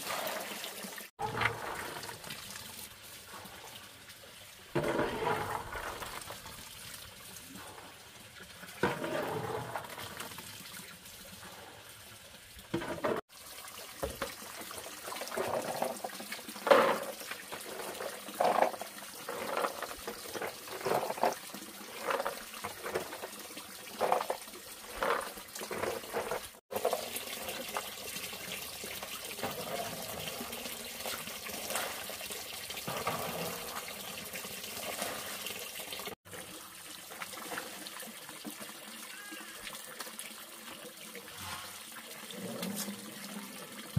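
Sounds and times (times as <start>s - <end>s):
water splashing and trickling: 0.0s - 43.9s.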